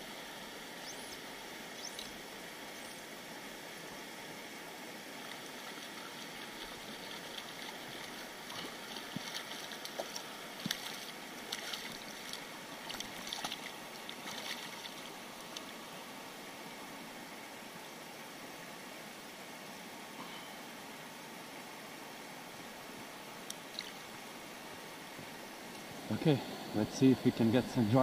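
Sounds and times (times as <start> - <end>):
river running over stones: 0.0 - 28.0
small splashes and drips: 5.2 - 15.7.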